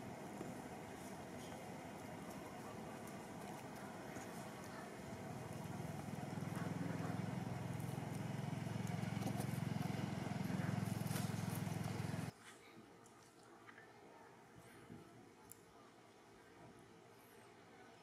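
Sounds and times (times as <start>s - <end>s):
engine pulsing hum: 0.0s - 12.3s.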